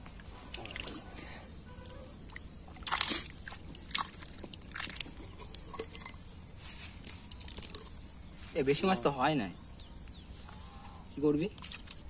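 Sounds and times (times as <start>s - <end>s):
wet rustles and splashes: 0.0s - 8.6s, 11.4s - 12.0s
hands rummaging through wet mud: 2.3s - 8.0s.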